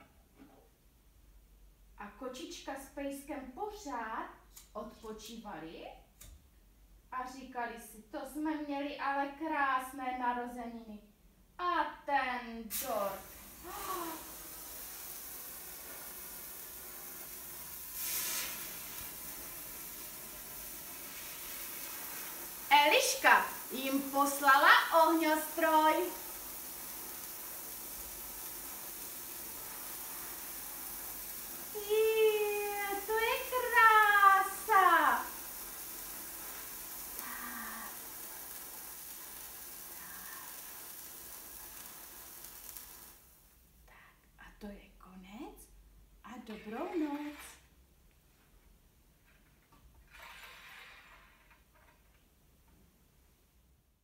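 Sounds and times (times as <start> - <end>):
sparkler fizzing hiss: 12.6 - 43.7, 46.5 - 47.6.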